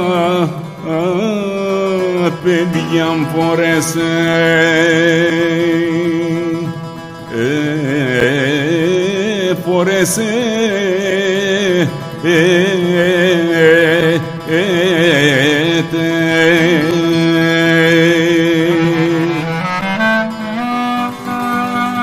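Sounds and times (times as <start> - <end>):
person singing folk song: 0.0 - 22.0.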